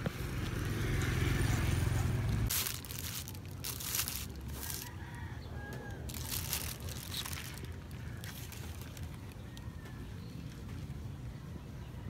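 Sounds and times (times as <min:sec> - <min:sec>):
plastic bag crinkling: 0:02.5 - 0:05.2, 0:05.9 - 0:09.7
rooster crowing faintly: 0:04.5 - 0:10.6.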